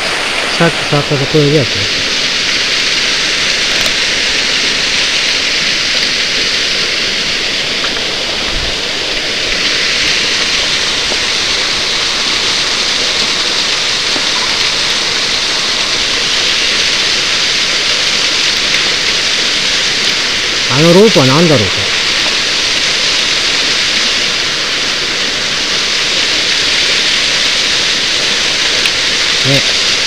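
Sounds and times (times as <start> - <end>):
waterfall hiss: 0.0 - 30.0.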